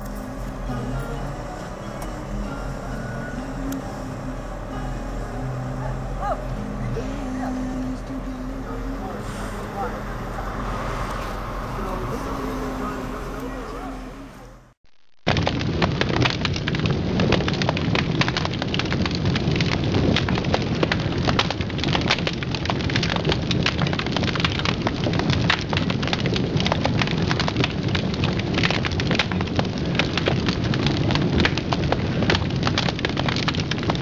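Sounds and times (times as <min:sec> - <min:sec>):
low rumble: 0:00.0 - 0:14.8
dense crackling: 0:00.0 - 0:34.0.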